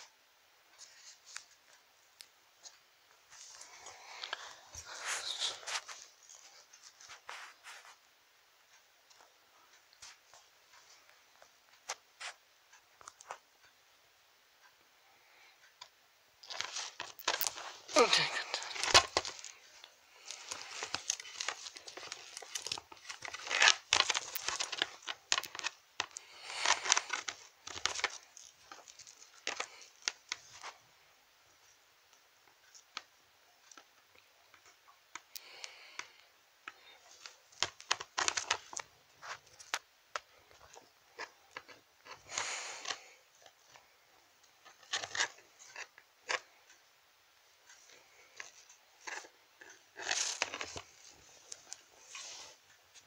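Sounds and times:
toys rustling and crinkling: 2.6 - 8.0, 16.4 - 30.8, 34.6 - 43.9, 44.6 - 46.5, 47.6 - 53.0.

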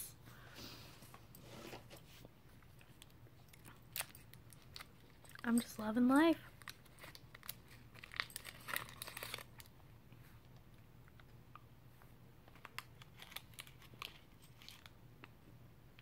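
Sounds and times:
candy wrapper crinkling: 2.8 - 9.8, 12.4 - 15.3.

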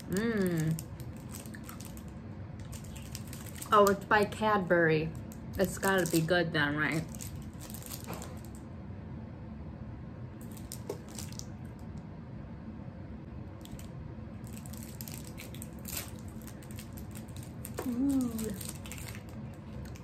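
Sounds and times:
plastic wrapper crinkling: 0.0 - 4.4, 5.0 - 8.6, 10.4 - 11.9, 13.6 - 20.0
room hum: 0.0 - 20.0.

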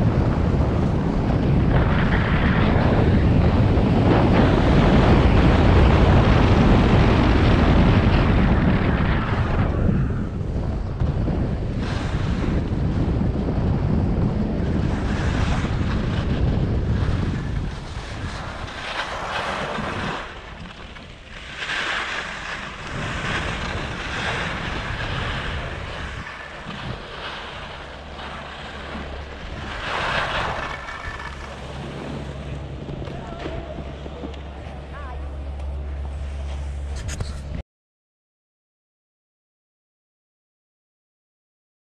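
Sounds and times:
wind buffeting microphone: 0.0 - 37.6
skis scraping over snow: 10.9 - 35.2, 35.8 - 37.5.

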